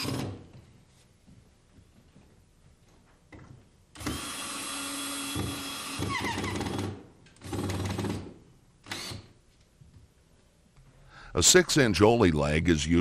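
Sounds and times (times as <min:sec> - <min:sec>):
cordless drill driving screws: 0:00.0 - 0:00.4, 0:04.0 - 0:09.3.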